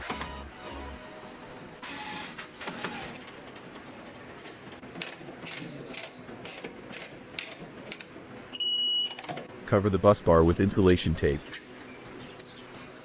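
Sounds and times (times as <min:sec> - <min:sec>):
sharp mechanical clicks: 0:04.9 - 0:08.1.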